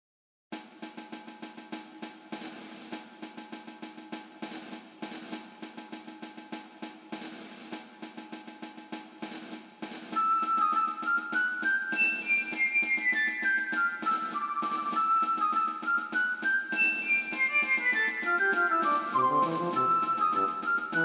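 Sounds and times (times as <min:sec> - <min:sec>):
tinkling melody: 0:10.1 - 0:21.0
quick drum strokes: 0:14.2 - 0:21.0.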